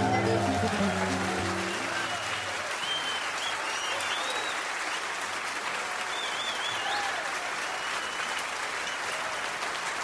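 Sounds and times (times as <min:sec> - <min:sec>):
audience clapping and cheering: 0:00.0 - 0:10.0
whistles gliding: 0:01.6 - 0:04.6.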